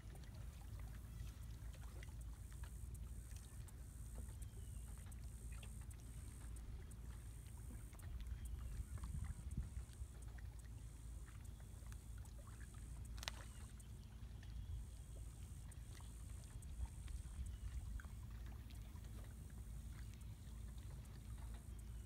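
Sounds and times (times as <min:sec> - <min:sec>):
faint ticks: 0:00.0 - 0:22.0
wind rumbling on microphone: 0:07.7 - 0:10.1.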